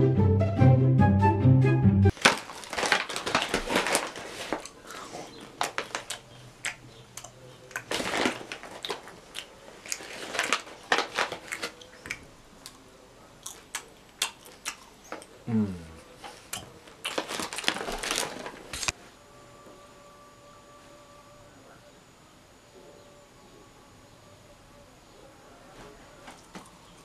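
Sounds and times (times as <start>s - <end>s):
person chewing loudly: 2.6s - 15.4s, 16.3s - 18.5s.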